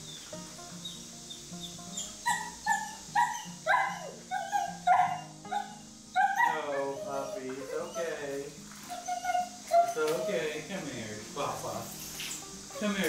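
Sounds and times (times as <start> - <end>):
dog yelping: 0.8 - 10.6.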